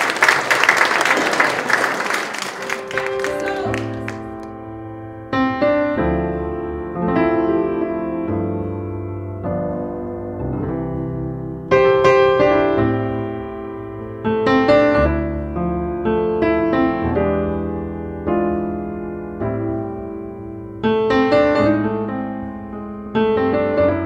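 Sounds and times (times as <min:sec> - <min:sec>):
audience applause: 0:00.0 - 0:04.5
gentle piano music: 0:02.6 - 0:24.0.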